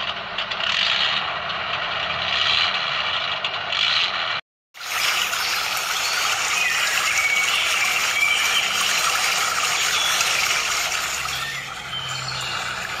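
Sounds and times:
stream water flowing: 4.8 - 13.0.

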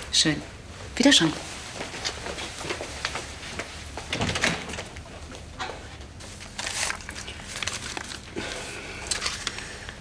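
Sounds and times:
door shutting: 4.1 - 4.9
paper rustling: 6.2 - 9.8.

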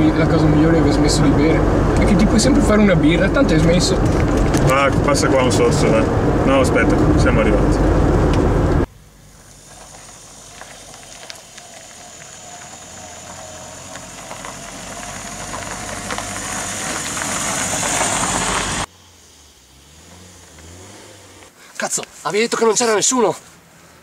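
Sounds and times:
tyres on gravel: 0.0 - 6.0, 8.3 - 18.9
small car engine: 0.0 - 21.8
car cabin engine and road noise: 0.0 - 24.0.

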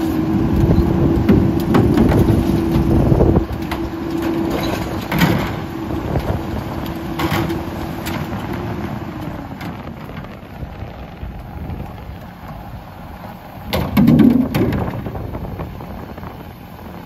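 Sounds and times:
garbage truck diesel engine: 0.0 - 17.0
plastic bins knocking and clattering: 13.7 - 15.1.

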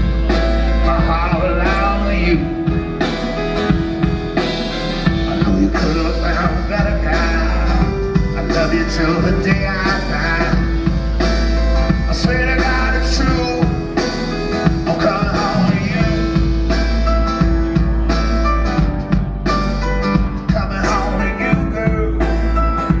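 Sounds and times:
drums: 0.0 - 23.0
man singing: 0.3 - 3.0, 5.0 - 16.8, 20.4 - 22.5.

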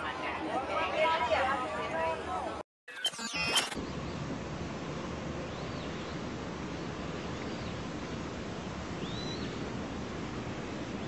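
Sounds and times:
steady noisy hiss: 3.8 - 11.0
faint high bird chirps: 9.0 - 9.6.

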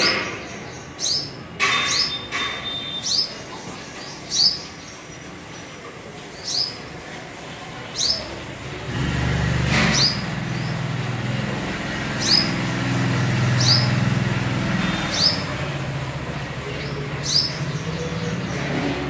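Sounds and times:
small bird chirping: 0.0 - 5.3, 6.4 - 6.9, 12.1 - 12.7, 13.4 - 14.0, 16.8 - 18.9.

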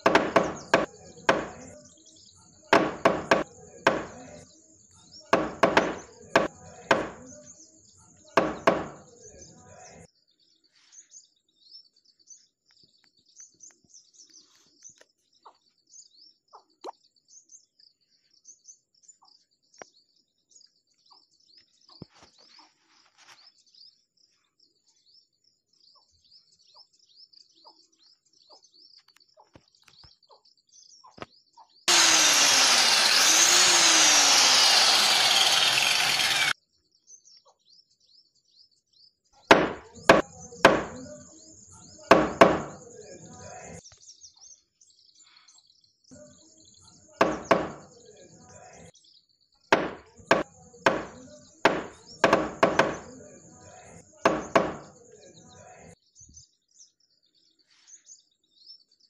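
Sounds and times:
birds chirping: 0.0 - 22.8, 39.5 - 48.9, 49.5 - 59.0
loud power tool running: 2.8 - 4.1, 5.4 - 7.2, 31.9 - 36.6.

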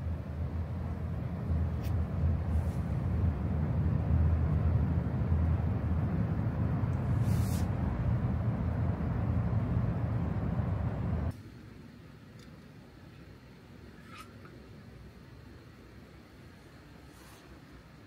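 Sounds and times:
gas stove flame roaring: 0.0 - 11.4
gas hiss: 7.0 - 7.9.

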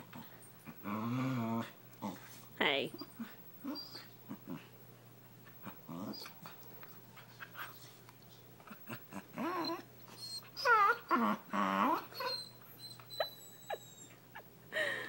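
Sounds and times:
dog grumbling and whining: 0.0 - 4.7, 5.5 - 6.6, 8.6 - 14.4.

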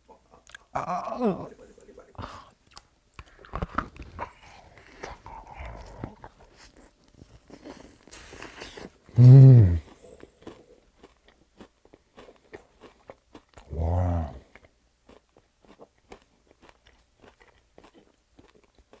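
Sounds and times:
person humming mmm: 0.8 - 1.5, 9.1 - 10.0, 13.7 - 14.5
crunchy food chewing: 2.7 - 19.0.

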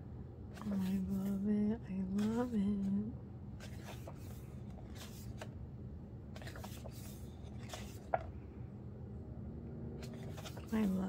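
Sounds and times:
steady low hum: 0.0 - 11.0
pages turning and rustling: 0.5 - 1.4, 2.1 - 2.6, 3.6 - 5.6, 6.3 - 8.4, 10.0 - 11.0.

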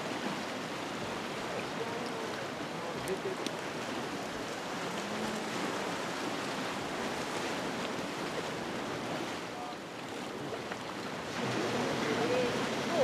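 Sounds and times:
ocean surf hissing: 11.3 - 13.0.

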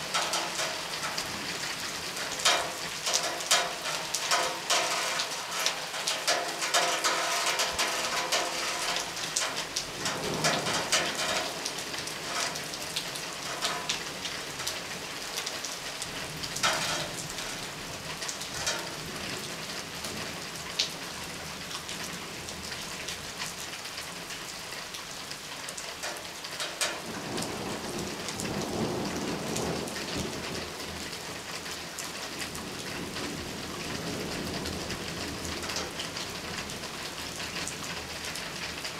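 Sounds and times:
rain drops ticking: 0.0 - 38.9
low thunder rumbling: 6.6 - 12.5, 27.0 - 30.8.

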